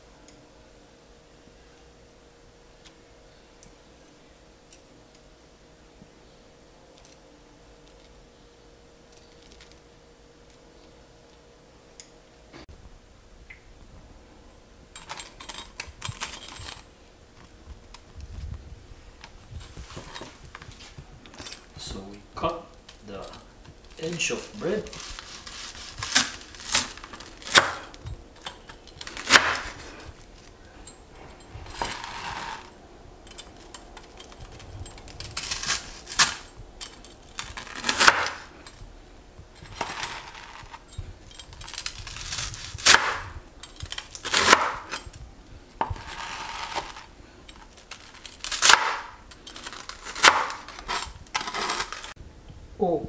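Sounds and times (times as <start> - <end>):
knife cutting crunchy toast: 24.4 - 28.0, 37.3 - 38.5, 43.9 - 45.1, 47.8 - 52.1.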